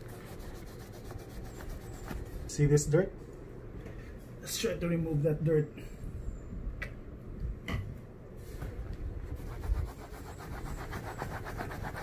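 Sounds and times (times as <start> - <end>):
cloth rubbing on leather: 0.0 - 2.5, 9.4 - 12.0.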